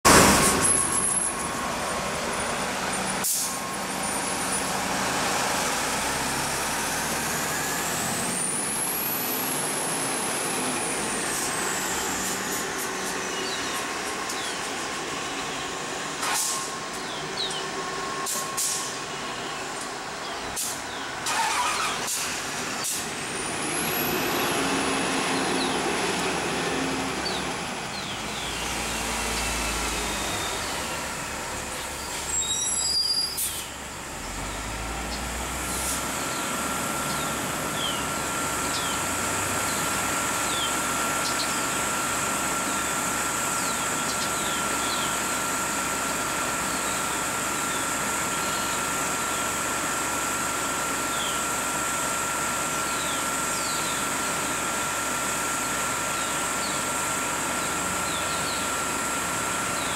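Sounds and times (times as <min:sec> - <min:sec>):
bus engines running: 0:00.1 - 0:59.9
air brakes hissing: 0:03.2 - 0:03.6, 0:18.2 - 0:19.0, 0:32.0 - 0:33.8, 0:35.7 - 0:36.1.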